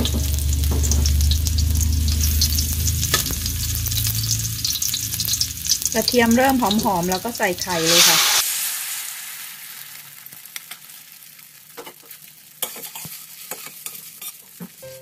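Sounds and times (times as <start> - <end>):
eggs sizzling in hot oil: 0.0 - 14.9
metal spatula scraping a wok: 7.6 - 8.7, 12.6 - 14.6.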